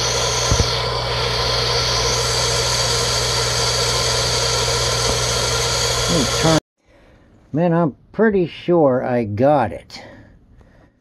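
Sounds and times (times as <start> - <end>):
water pump motor humming: 0.0 - 6.6.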